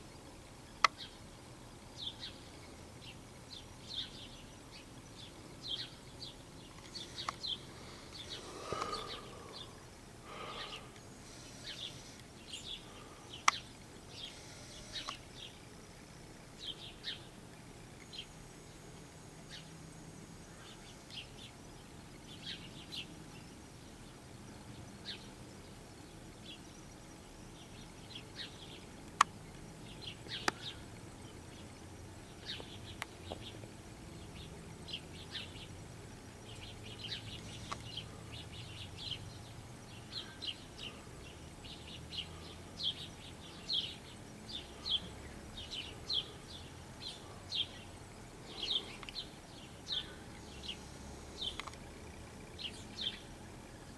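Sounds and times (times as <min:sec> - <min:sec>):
small songbirds chirping: 0:00.0 - 0:53.9
sharp clicks: 0:48.9 - 0:49.2, 0:51.4 - 0:51.9.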